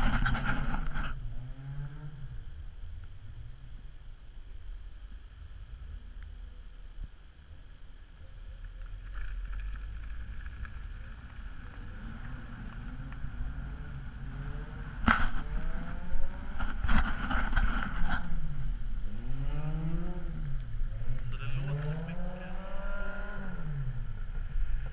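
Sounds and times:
car engine revving: 0.0s - 2.8s, 10.0s - 24.9s.

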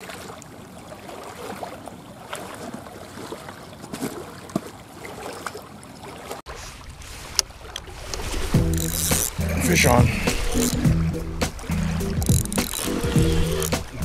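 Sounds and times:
small waves lapping on rocks: 0.0s - 14.0s
wind: 0.0s - 14.0s
rough low rumble: 8.5s - 14.0s
clicks and knocks: 12.2s - 14.0s.

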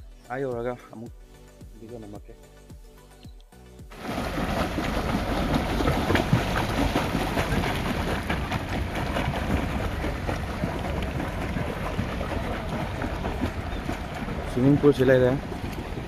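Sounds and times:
wind buffeting microphone: 4.2s - 16.0s.

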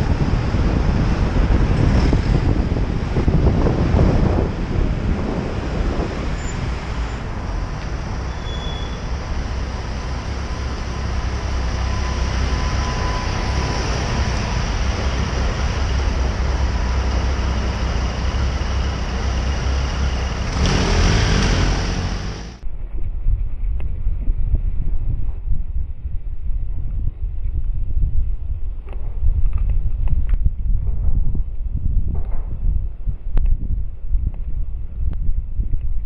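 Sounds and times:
passing cars rumbling: 0.0s - 22.6s.

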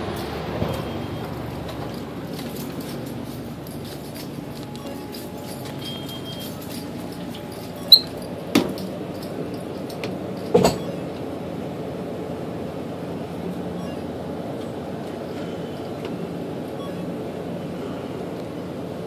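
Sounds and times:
cooler door squeak: 7.8s - 8.2s, 10.5s - 11.1s.

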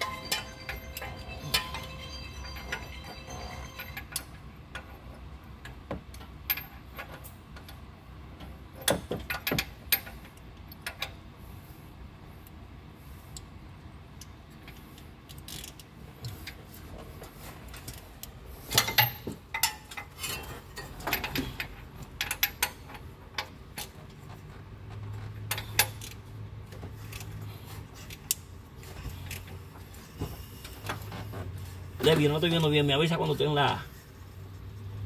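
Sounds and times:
hand tools clinking on metal: 0.0s - 4.4s
low steady hum: 0.0s - 35.0s.

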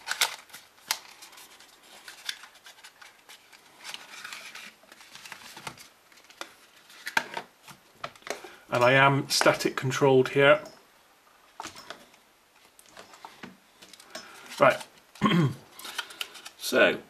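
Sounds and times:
cardboard rustle: 0.0s - 7.8s.

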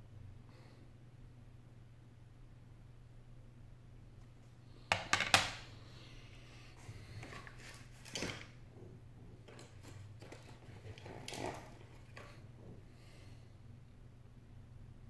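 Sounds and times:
phone parts clicking on a desk: 4.9s - 5.6s.

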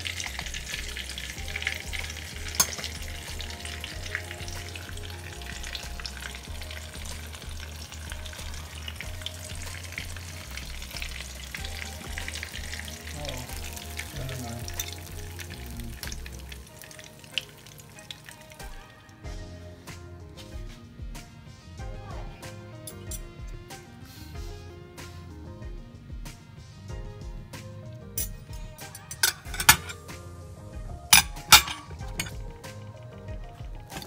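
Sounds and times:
food sizzling in oil: 0.0s - 19.5s, 27.6s - 34.0s.

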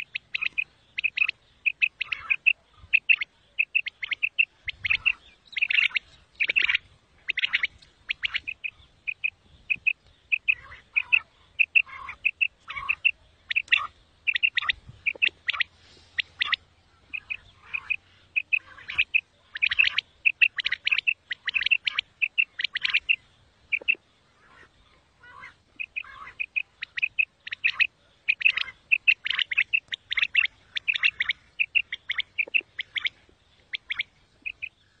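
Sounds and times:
quail chirping: 0.0s - 35.0s.

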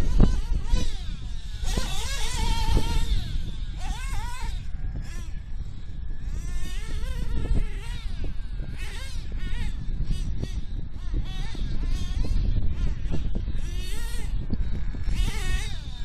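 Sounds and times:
nitro engine revving with whine: 0.0s - 16.0s.

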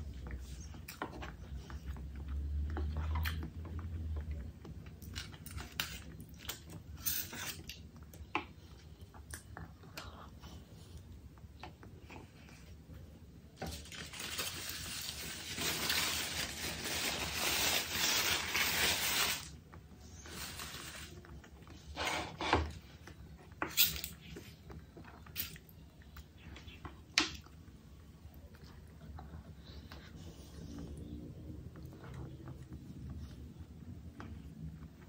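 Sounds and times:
rustling crinkling: 13.5s - 22.0s.

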